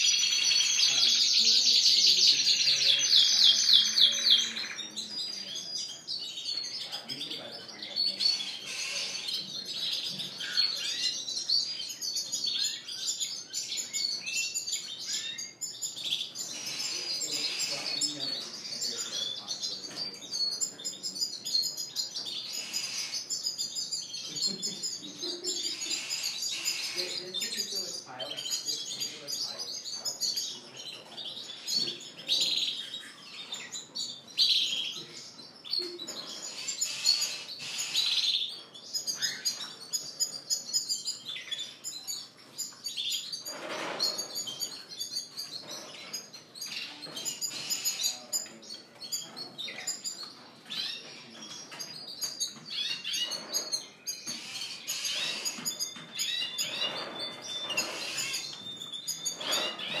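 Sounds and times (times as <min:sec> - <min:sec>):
canaries singing: 0:00.0 - 1:00.0.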